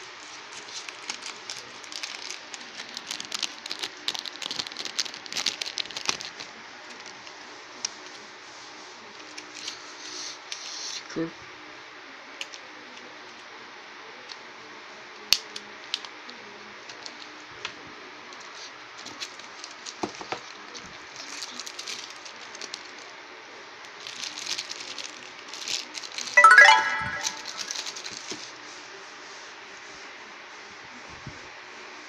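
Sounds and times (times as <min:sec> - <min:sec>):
packaging clicks and crinkling: 0:00.2 - 0:07.3, 0:19.0 - 0:23.0, 0:24.0 - 0:26.4, 0:27.5 - 0:28.4.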